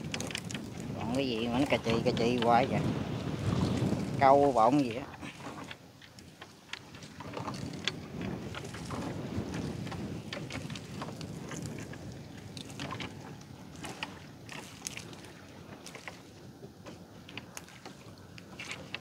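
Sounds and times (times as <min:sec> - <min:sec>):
water and hull rumble: 0:00.0 - 0:19.0.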